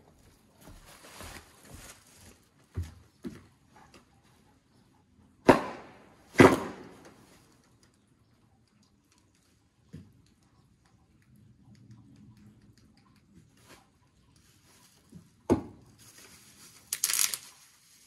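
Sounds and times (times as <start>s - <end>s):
footsteps on a wooden deck: 0.0s - 4.1s
loud sharp bangs: 5.5s - 7.0s.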